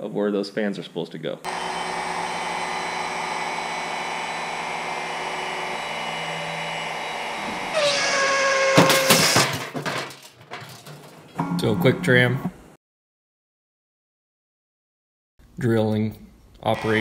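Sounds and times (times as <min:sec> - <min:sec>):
cnc router whine: 0:01.5 - 0:08.6
rapid rattling clatter: 0:08.8 - 0:11.2.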